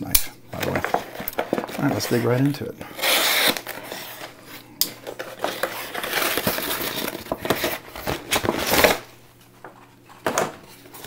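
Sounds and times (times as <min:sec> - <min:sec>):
paper envelope tearing and crinkling: 0:00.6 - 0:04.4, 0:05.1 - 0:09.1.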